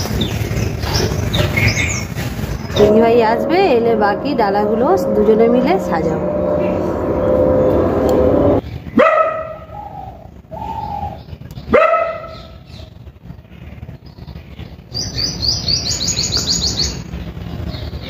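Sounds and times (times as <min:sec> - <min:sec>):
dog barking: 0:09.0 - 0:09.6, 0:11.7 - 0:12.4.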